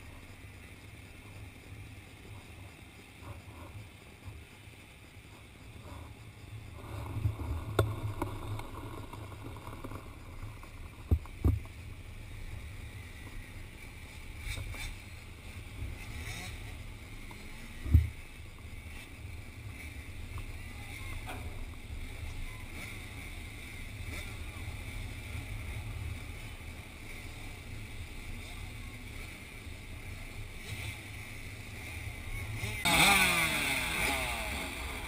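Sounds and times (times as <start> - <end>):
distant motocross bike engines: 0.0 - 35.0
wind rumbling on microphone: 5.4 - 28.8.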